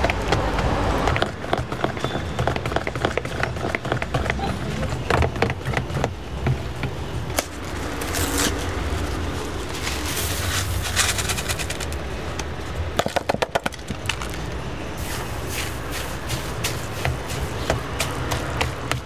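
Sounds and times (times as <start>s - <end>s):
cardboard packet shaken out: 7.5s - 12.0s.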